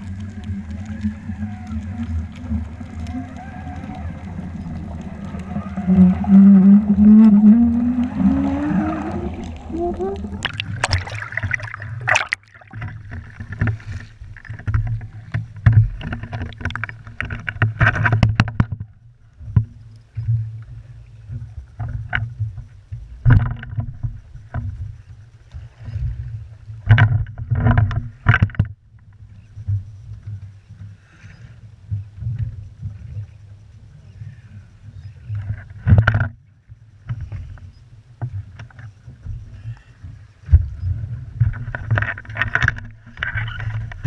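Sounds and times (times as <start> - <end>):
water splashes: 0.0 - 18.8
low rumble: 0.0 - 19.9
muffled water sloshing: 0.0 - 44.0.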